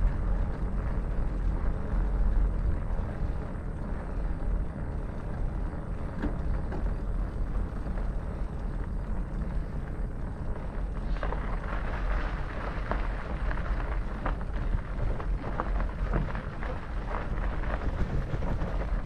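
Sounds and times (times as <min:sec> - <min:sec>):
bike tyres rolling on pavement: 0:00.0 - 0:19.0
faint ticks: 0:00.0 - 0:19.0.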